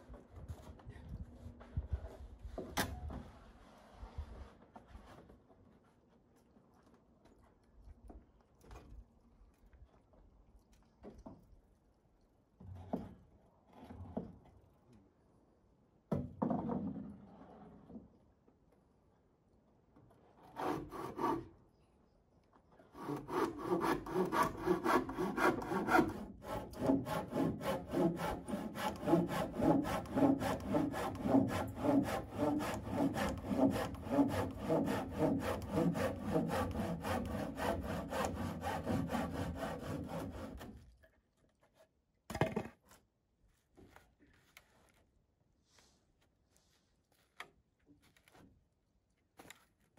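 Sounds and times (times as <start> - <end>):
hand saw cutting wood: 20.4 - 21.5, 22.9 - 40.9.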